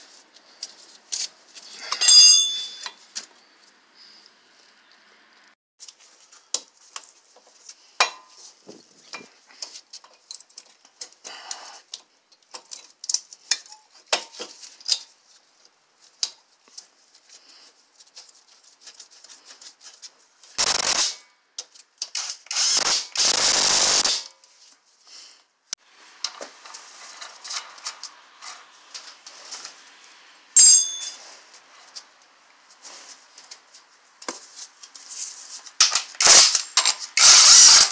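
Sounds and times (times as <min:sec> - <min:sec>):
metal tools clicking and clinking: 0:01.1 - 0:03.0, 0:30.6 - 0:31.2, 0:35.8 - 0:37.9
sharp metallic ring: 0:02.0 - 0:03.0, 0:30.6 - 0:31.2
noisy bursts: 0:20.6 - 0:21.2, 0:22.5 - 0:24.2.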